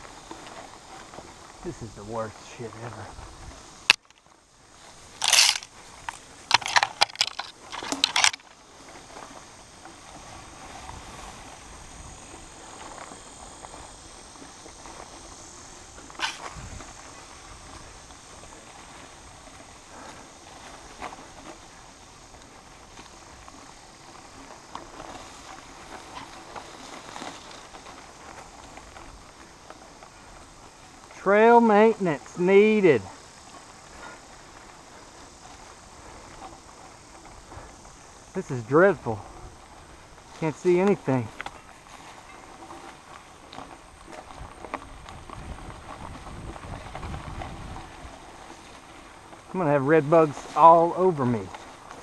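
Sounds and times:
bike tyres rolling hiss: 0.0s - 52.0s
leaves and branches rustling: 0.0s - 52.0s
twigs crackling and snapping: 3.9s - 4.3s, 5.1s - 8.6s, 16.1s - 17.1s.

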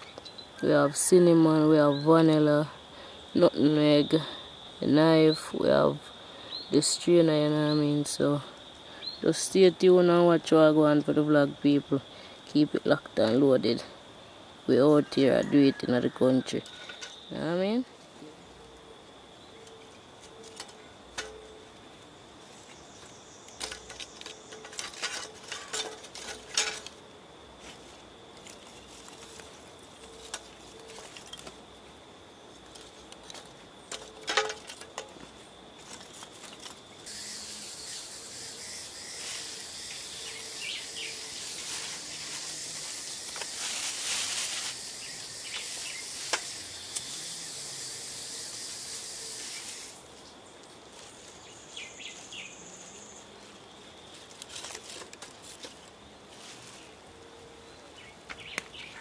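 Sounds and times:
insect trill: 0.0s - 59.0s
steady hiss: 16.6s - 57.4s
charcoal clinking on metal grate: 23.6s - 27.0s, 33.2s - 35.2s.

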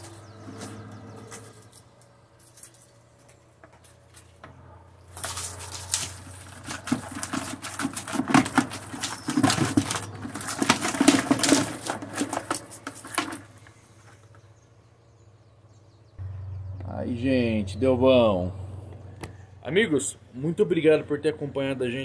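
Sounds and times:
fish flapping and splashing: 5.1s - 13.6s.

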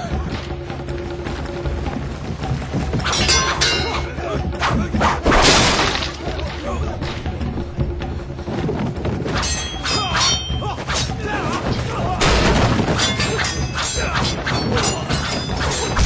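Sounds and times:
film score: 0.0s - 16.0s
metal blades clashing: 3.0s - 4.1s, 9.3s - 16.0s
fighters shouting and grunting: 9.8s - 16.0s.

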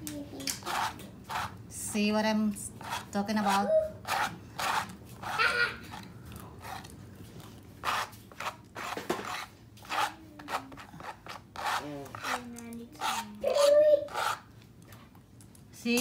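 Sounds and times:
palette knife scraping paint: 0.6s - 1.6s, 2.8s - 14.5s.

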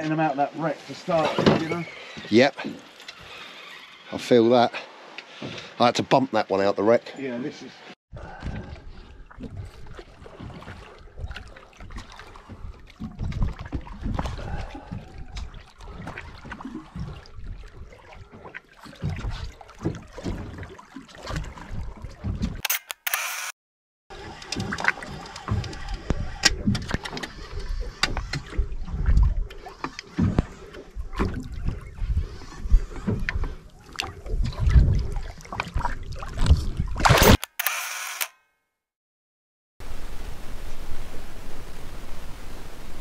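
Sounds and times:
water splashing against boat hull: 8.3s - 22.6s, 24.2s - 37.1s
camera shutter clicks: 22.7s - 23.5s, 37.1s - 38.4s.

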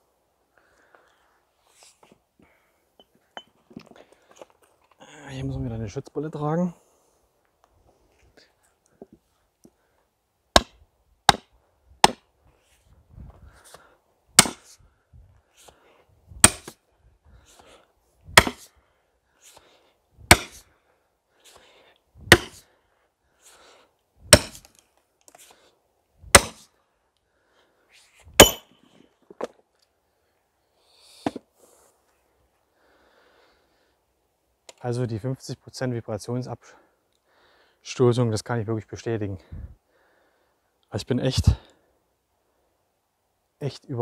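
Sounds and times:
maul striking metal wedge: 10.6s - 12.2s, 14.4s - 14.8s, 16.4s - 16.8s, 18.4s - 18.7s, 20.3s - 20.6s, 22.3s - 22.6s, 24.3s - 24.7s, 26.3s - 26.6s, 28.4s - 28.8s.

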